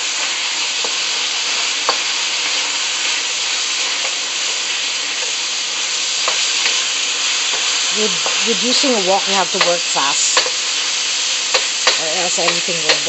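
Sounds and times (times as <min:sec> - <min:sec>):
beef sizzling in a wok: 0:00.0 - 0:13.0
wooden spatula knocking pan: 0:06.2 - 0:06.8, 0:11.5 - 0:13.0.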